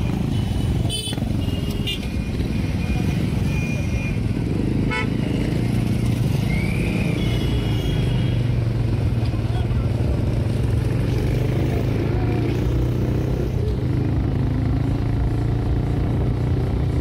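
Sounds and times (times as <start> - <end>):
road traffic rumble: 0.0 - 17.0
vehicle horn toots: 4.9 - 5.2, 7.2 - 8.4.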